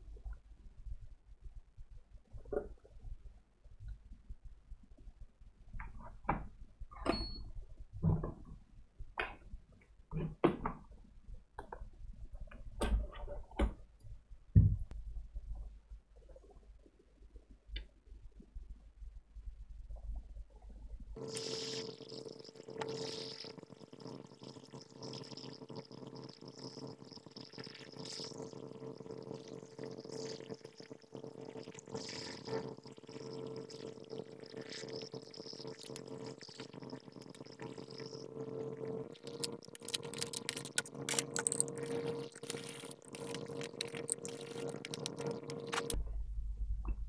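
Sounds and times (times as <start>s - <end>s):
hot air rework station hissing: 21.2s - 23.6s, 31.9s - 32.8s
constant low hum: 25.6s - 47.0s.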